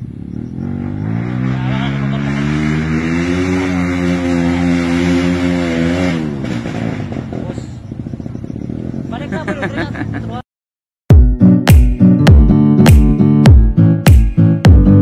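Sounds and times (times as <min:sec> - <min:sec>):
dirt bike engine revving: 0:00.0 - 0:09.7.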